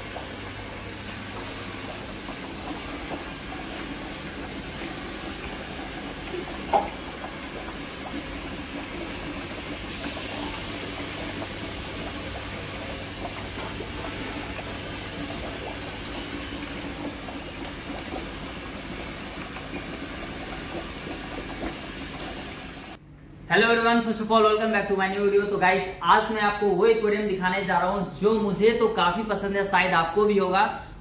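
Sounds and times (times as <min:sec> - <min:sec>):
water churning and splashing: 0:00.0 - 0:23.0.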